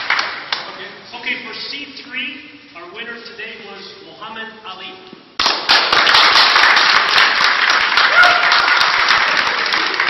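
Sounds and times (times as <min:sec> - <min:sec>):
audience applause: 0:00.0 - 0:00.4, 0:05.4 - 0:10.0.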